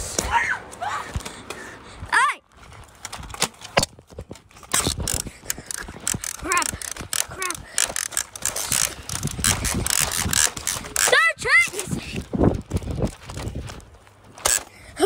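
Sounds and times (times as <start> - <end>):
toy blaster clicking and rattling: 4.6 - 13.8, 14.4 - 14.8.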